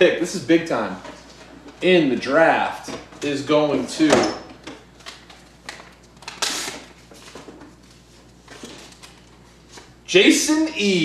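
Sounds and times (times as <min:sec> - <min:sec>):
paper rustling and crinkling: 0:05.0 - 0:10.0.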